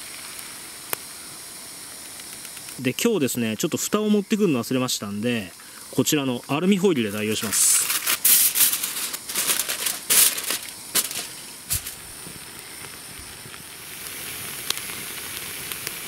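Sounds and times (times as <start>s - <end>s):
food sizzling in butter: 0.0s - 16.0s
aluminium foil crinkling and tearing: 7.3s - 12.2s.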